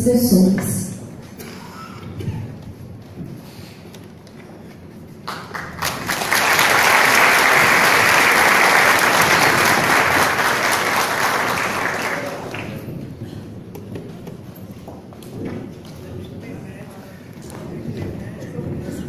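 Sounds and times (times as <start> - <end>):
audience applauding: 5.2 - 12.9.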